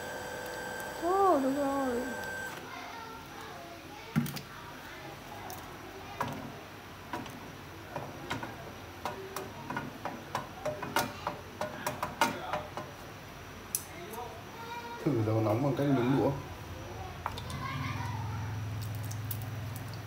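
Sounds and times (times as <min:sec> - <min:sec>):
oil spitting in a frying pan: 0:17.2 - 0:20.0.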